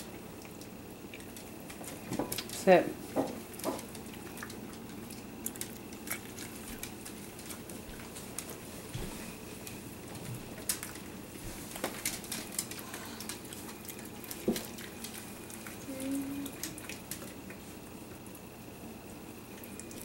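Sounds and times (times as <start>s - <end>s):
wet licking and smacking: 0.0s - 2.6s, 3.3s - 8.7s, 9.6s - 18.2s
dog toenails clicking on floor: 0.4s - 15.8s.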